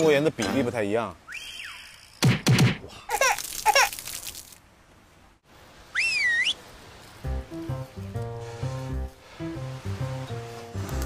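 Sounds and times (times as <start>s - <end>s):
cartoon whistle swoops: 5.9s - 6.6s.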